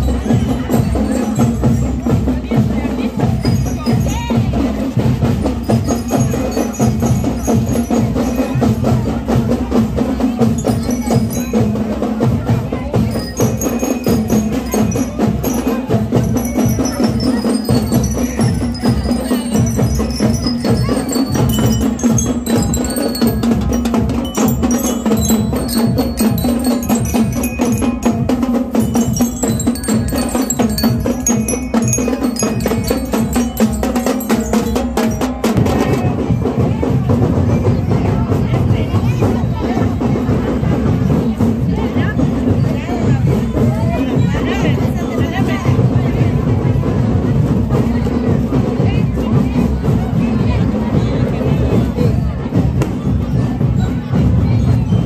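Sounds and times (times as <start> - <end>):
bell-like melody notes: 0.0 - 36.3
marching drums: 0.0 - 55.0.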